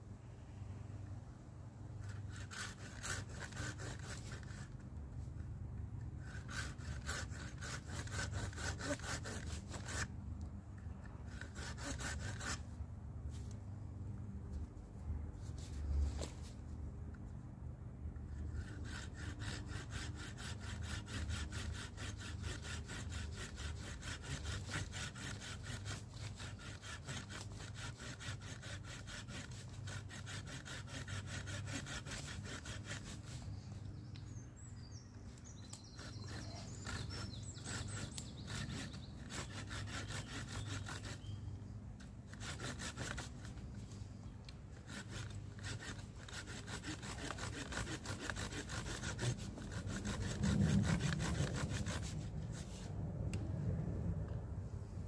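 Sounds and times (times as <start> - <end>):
saw cutting wooden stick: 2.0 - 10.1, 11.0 - 13.6, 18.2 - 33.6, 35.3 - 41.4, 42.0 - 52.9.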